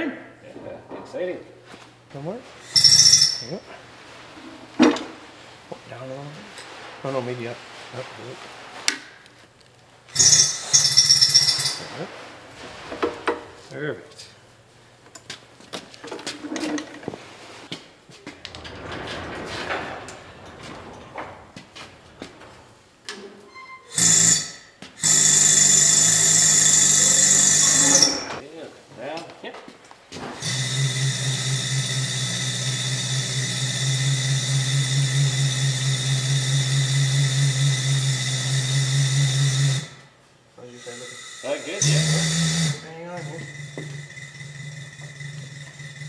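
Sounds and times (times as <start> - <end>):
chain hoist rattling rumble: 10.1 - 12.0, 18.2 - 23.1, 43.2 - 46.0
metal clinks and knocks: 18.1 - 23.4
electric hoist motor humming: 40.9 - 46.0.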